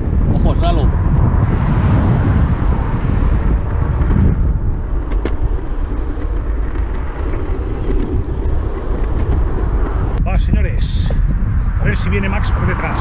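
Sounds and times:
small wheels rolling on asphalt: 0.0s - 10.2s
wind buffeting microphone: 0.0s - 13.0s.

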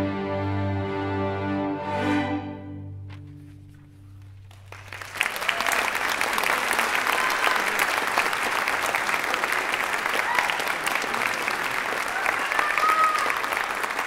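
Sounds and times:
string orchestra chord: 0.0s - 3.7s
audience applause: 4.2s - 14.0s.

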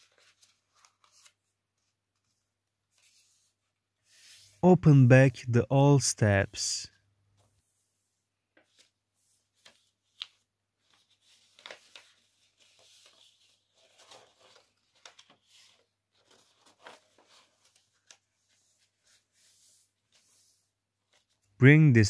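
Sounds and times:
paper crinkling being folded: 0.0s - 3.5s, 8.6s - 21.6s.

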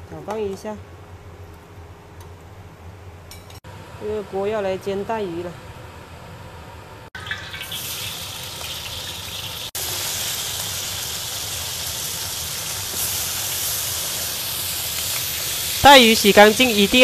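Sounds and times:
fish sizzling in oil: 7.2s - 17.0s.

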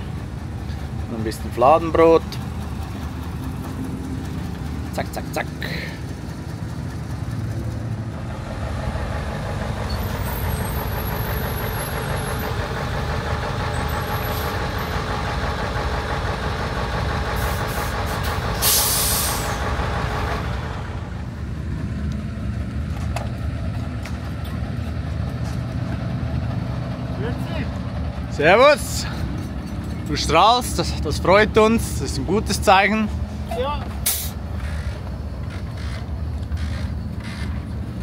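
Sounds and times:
diesel truck engine: 0.0s - 38.0s
air brakes hissing: 17.3s - 19.6s, 33.3s - 34.8s.

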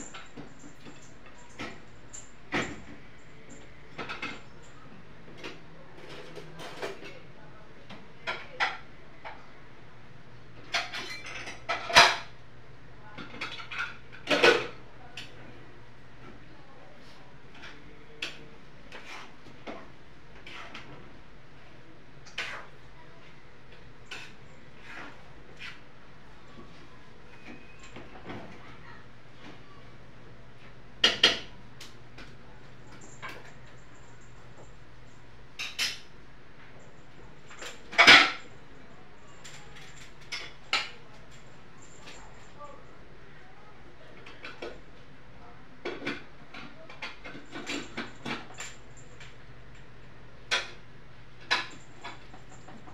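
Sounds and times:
dishes clinking and clattering: 0.0s - 7.2s, 8.2s - 9.4s, 10.6s - 12.4s, 13.2s - 14.8s, 24.0s - 25.8s, 31.0s - 34.8s, 35.6s - 36.1s, 36.8s - 38.6s, 39.4s - 42.4s, 45.8s - 49.3s, 50.5s - 50.8s, 51.4s - 52.9s.

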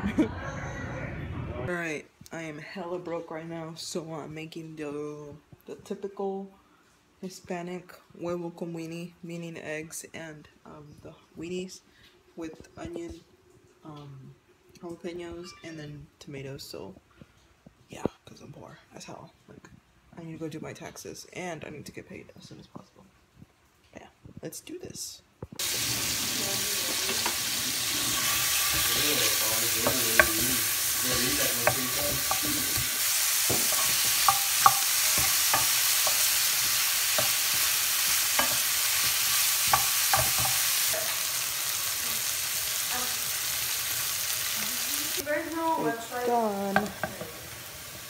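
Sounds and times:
food sizzling in a frying pan: 25.5s - 48.0s
wooden spoon scraping a pan: 25.6s - 41.3s.

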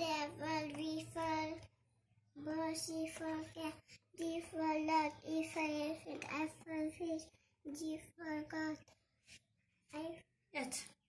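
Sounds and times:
girl chanting in sing-song voice: 0.0s - 1.6s.

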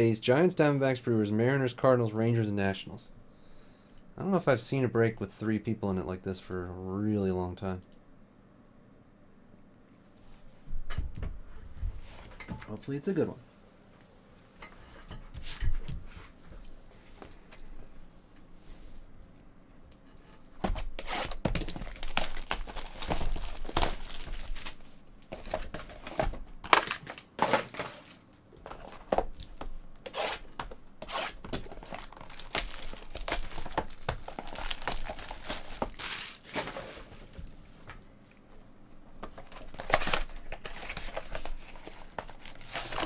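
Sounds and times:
plastic shrink wrap tearing: 20.9s - 24.8s, 31.0s - 36.6s, 39.6s - 43.0s.

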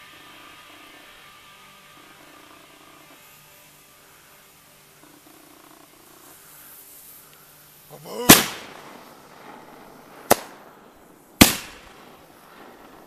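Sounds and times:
firework bangs: 8.0s - 13.0s
firework whistle: 8.1s - 10.6s.

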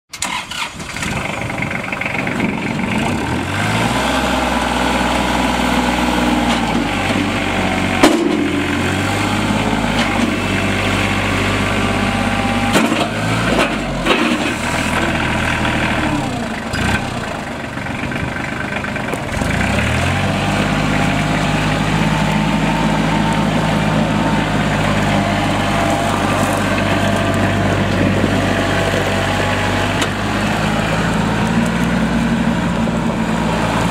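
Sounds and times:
tractor diesel engine running: 0.1s - 33.9s.

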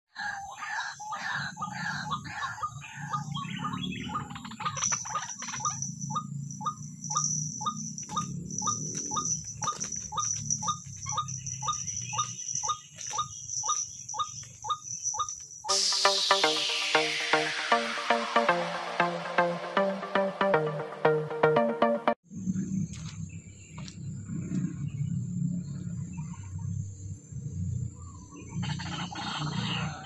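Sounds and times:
electronic music: 13.7s - 22.2s.

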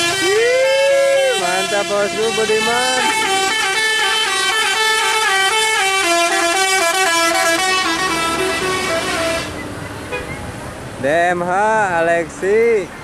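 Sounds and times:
bus musical horn playing a tune: 0.0s - 10.4s.

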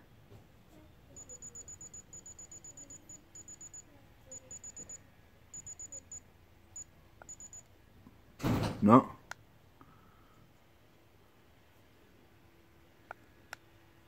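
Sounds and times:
thermometer short high beeps: 1.2s - 6.2s, 6.8s - 7.7s.

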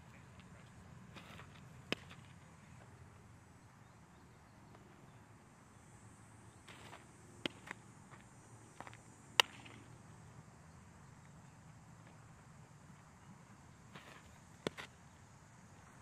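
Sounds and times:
baseball smacking into glove: 1.2s - 2.4s, 6.7s - 7.8s, 9.4s - 9.9s, 14.0s - 15.0s.

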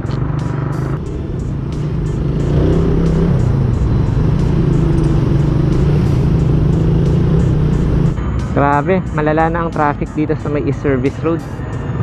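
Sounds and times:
motorcycle engine pulling away: 0.0s - 8.2s.

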